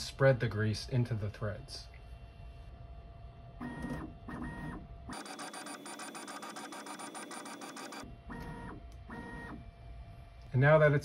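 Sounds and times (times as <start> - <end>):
stepper motors pulsing whir: 3.6 - 9.7.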